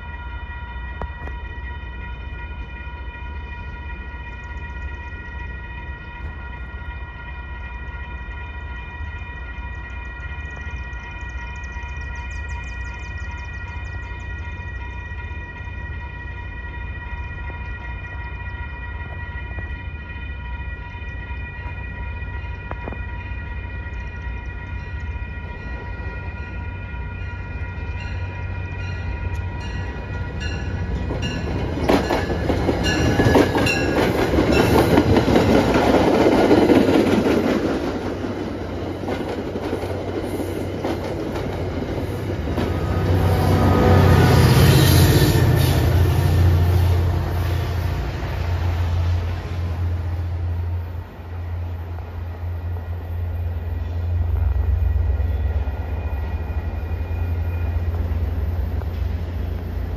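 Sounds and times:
train horn: 0.0 - 12.4, 13.2 - 59.9
wheels clacking over rail joints: 28.0 - 43.3.

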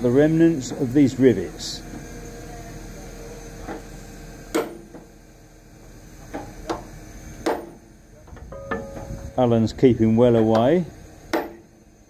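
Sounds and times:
sledgehammer striking steel: 4.5 - 4.9, 7.4 - 7.8, 11.3 - 11.7.

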